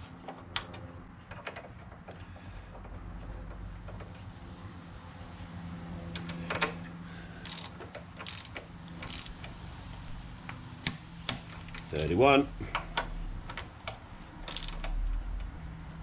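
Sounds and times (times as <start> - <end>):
ratchet wrench clicking: 7.4 - 9.6, 13.6 - 15.1.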